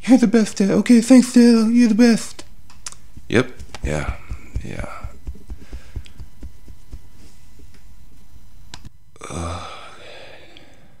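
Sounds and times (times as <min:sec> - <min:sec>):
soft taps and thumps: 0:03.0 - 0:07.1
man's low guttural grunt: 0:09.2 - 0:09.9.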